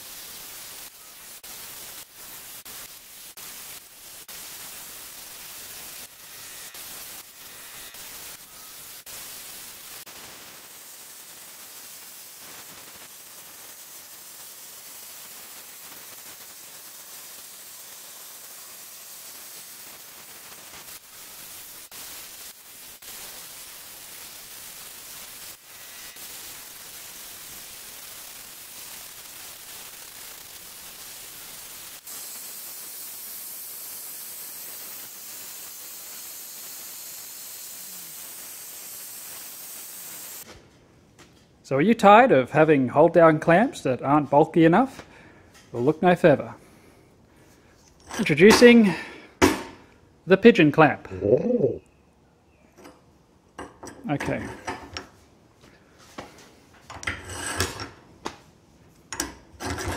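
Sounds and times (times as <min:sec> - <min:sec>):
plasma cutter cutting steel: 0:00.0 - 0:40.5, 0:48.0 - 0:48.8, 0:59.2 - 0:59.9.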